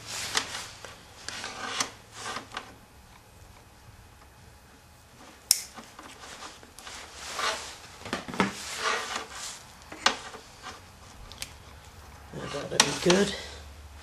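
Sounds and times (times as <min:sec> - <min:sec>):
sharp click: 0:05.5 - 0:05.8
rasping tape swishes: 0:08.5 - 0:11.7.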